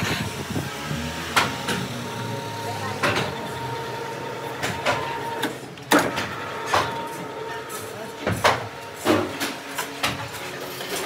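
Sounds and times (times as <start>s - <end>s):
metallic clanks of metal parts: 4.6s - 11.0s.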